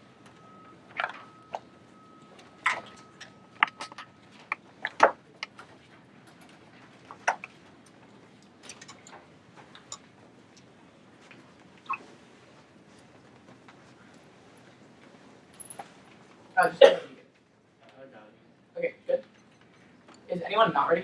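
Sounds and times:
faint high whine: 0.0 - 5.4
clicks and knocks of laptops: 0.2 - 12.2.

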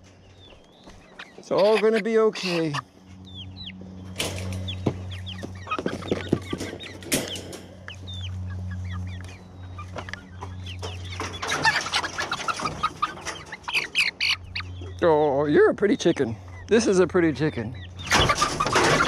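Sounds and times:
steady low hum: 0.0 - 18.2
chicks clucking and peeping: 0.0 - 19.0
wire cage clicks: 4.1 - 4.8, 6.0 - 8.0, 10.0 - 14.3.

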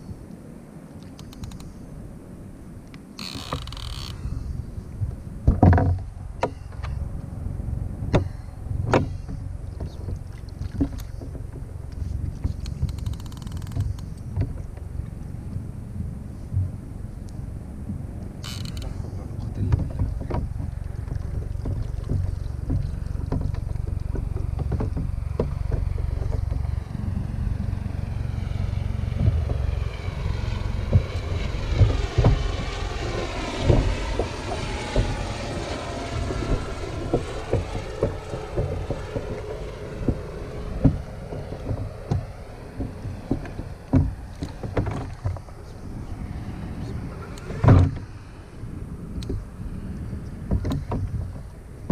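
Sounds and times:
wind buffeting microphone: 0.0 - 51.9
wavering pitched drone: 14.9 - 50.0.

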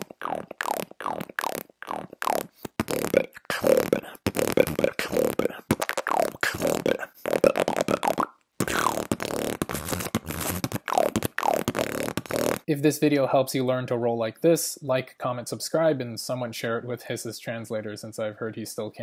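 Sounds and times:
beatbox lip rolls and pops: 0.0 - 12.7.

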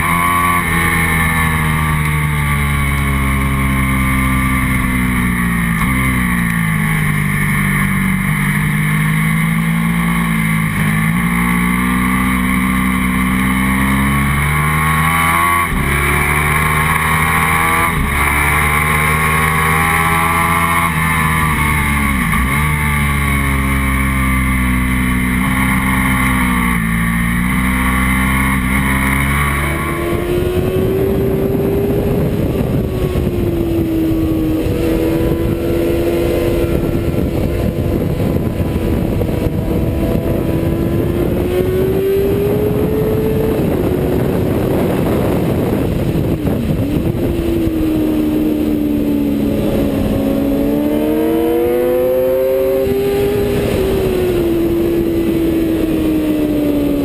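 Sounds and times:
motorcycle engine revving: 0.0 - 57.0
wind rush on microphone: 12.0 - 57.0.

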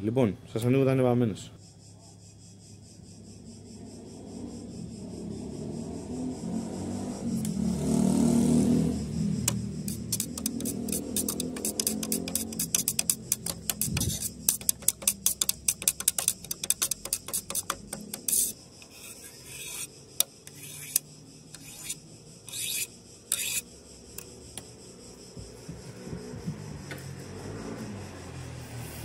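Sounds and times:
stick scraping paint tin: 9.5 - 21.0, 21.6 - 23.6.

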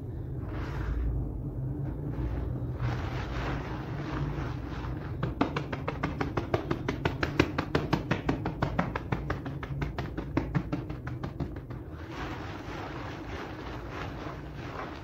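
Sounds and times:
scrub brushes scraping wet rug: 2.1 - 5.2, 12.0 - 15.0.

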